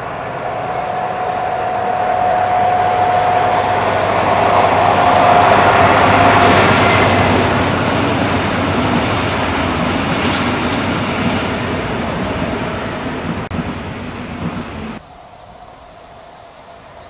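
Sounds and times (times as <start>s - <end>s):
train coaches rolling on rails: 0.0s - 15.6s
locomotive engine passing: 0.0s - 17.0s.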